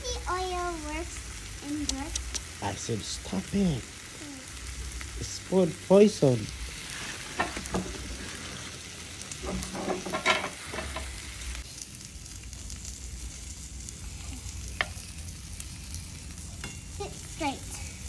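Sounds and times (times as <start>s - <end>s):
meat sizzling on a grill: 0.0s - 18.0s
metal tongs clinking on grate: 9.5s - 11.1s, 16.6s - 17.0s.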